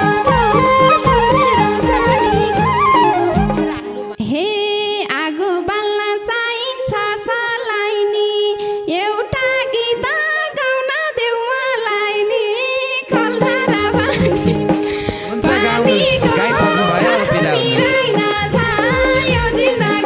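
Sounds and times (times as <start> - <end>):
woman singing: 4.2 - 20.0.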